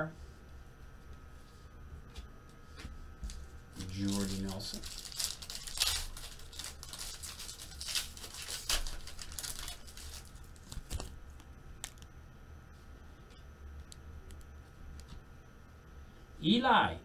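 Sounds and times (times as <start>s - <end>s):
foil pack tearing and crinkling: 3.3s - 11.2s, 11.8s - 12.0s.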